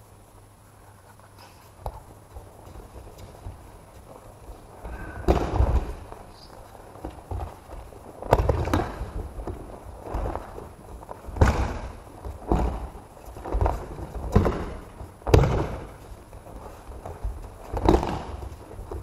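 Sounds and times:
bare feet shuffling: 0:00.3 - 0:19.0
bodies thudding on mat: 0:04.5 - 0:06.3, 0:07.0 - 0:19.0.

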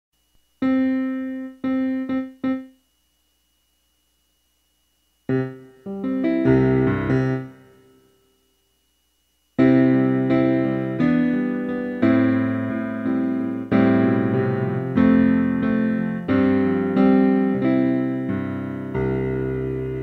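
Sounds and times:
piano music: 0:00.6 - 0:02.8, 0:05.3 - 0:08.0, 0:09.6 - 0:20.0.

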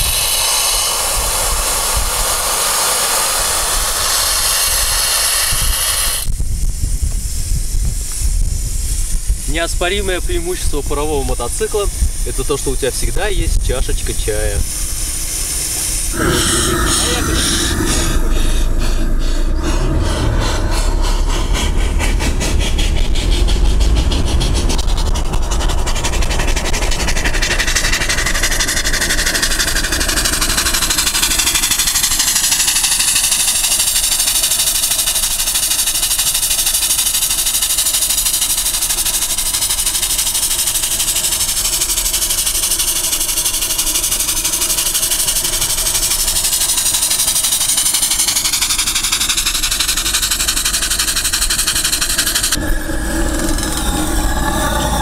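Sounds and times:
loud hiss of exhaust steam: 0:00.0 - 0:55.0
steam engine chuffing: 0:00.0 - 0:55.0
low rumble: 0:11.9 - 0:33.2, 0:52.4 - 0:55.0.

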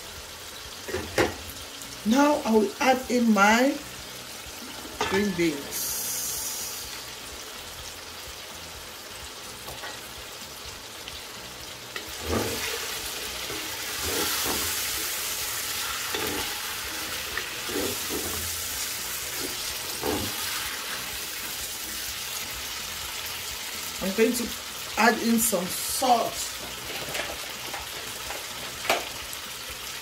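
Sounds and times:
vegetables sizzling in a pan: 0:00.0 - 0:30.0
wooden spatula scraping pan: 0:12.0 - 0:14.9, 0:17.4 - 0:18.5.

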